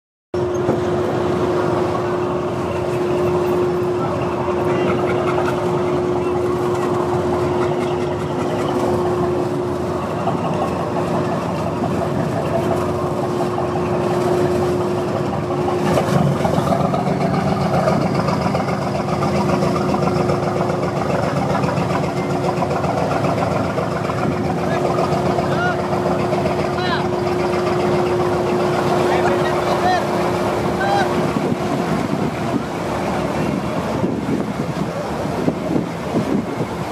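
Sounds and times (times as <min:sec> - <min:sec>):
boat engine running: 0:00.3 - 0:36.9
lower engine note: 0:00.4 - 0:36.9.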